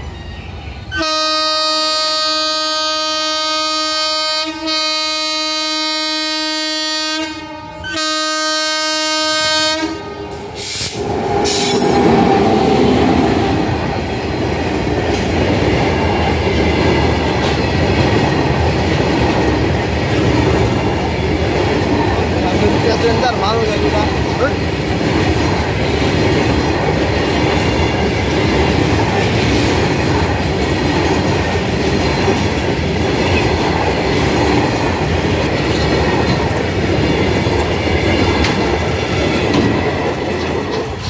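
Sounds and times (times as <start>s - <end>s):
freight train rumbling past: 0.0s - 41.0s
locomotive horn blasts: 0.9s - 10.4s.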